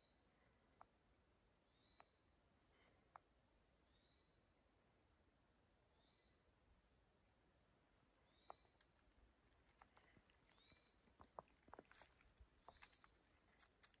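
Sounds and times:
faint high chirp: 1.7 - 2.3, 3.8 - 4.5, 5.9 - 6.6, 8.2 - 9.0, 10.0 - 11.4, 12.6 - 13.7.

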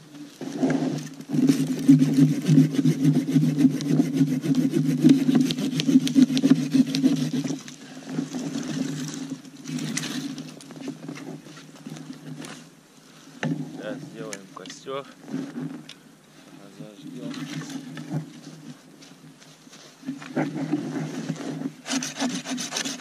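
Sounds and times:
hand saw cutting wood: 0.7 - 7.7, 21.3 - 23.0.

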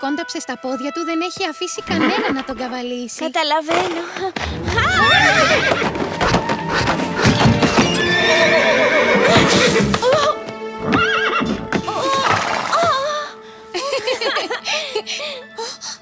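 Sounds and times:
background music: 0.0 - 16.0
hooves clattering: 1.0 - 13.0
horse whinnying: 1.9 - 2.6, 4.5 - 12.9.

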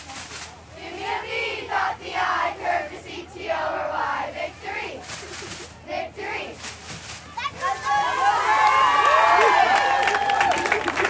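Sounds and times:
girls chanting a cheer: 0.8 - 5.0, 5.8 - 6.6.

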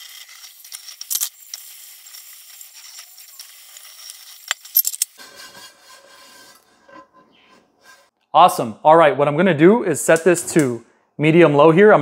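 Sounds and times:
cloth rubbing over pan: 5.2 - 8.1.

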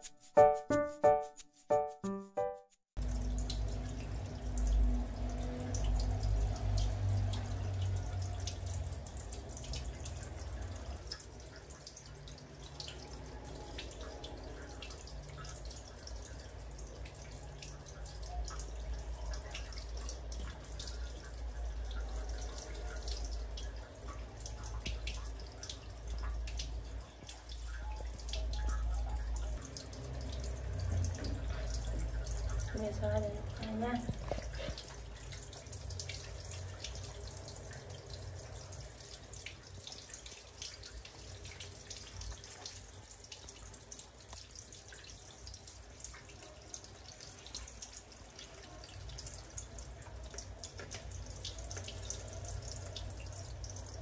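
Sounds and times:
shower spray pattering: 0.0 - 2.8.

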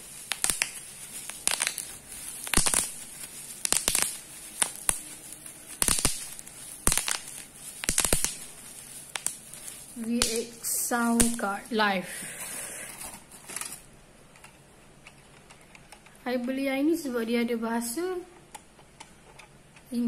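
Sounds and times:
bubble wrap crackling: 0.0 - 12.0.

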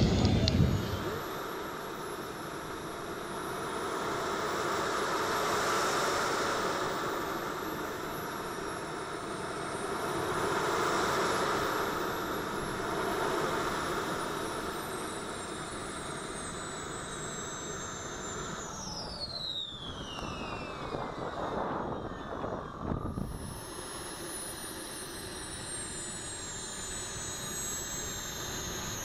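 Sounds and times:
steady jet rush: 0.0 - 1.4
high turbine whines: 0.0 - 29.0.

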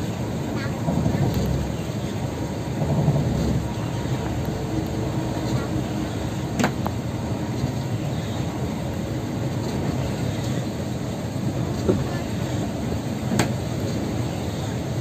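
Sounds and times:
bus engine and road rumble: 0.0 - 15.0.

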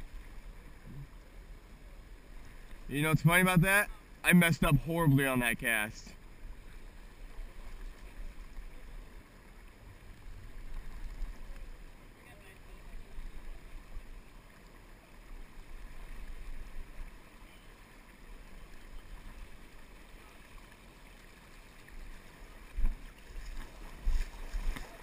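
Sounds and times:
river water: 0.0 - 25.0.

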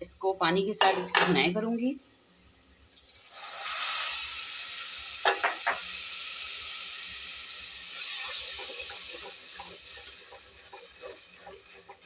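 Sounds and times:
onions sizzling in hot oil: 2.9 - 12.0.

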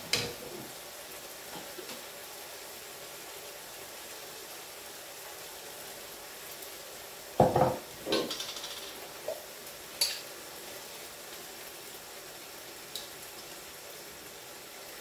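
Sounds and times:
chicken sizzling in a pan: 0.0 - 15.0
jar set down on worktop: 7.4 - 8.3.

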